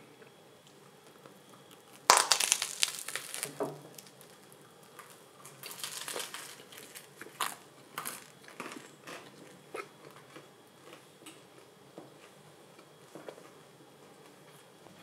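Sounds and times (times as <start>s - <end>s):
chewing crackles: 0.6s - 13.4s
bread crust crunching: 1.1s - 11.1s.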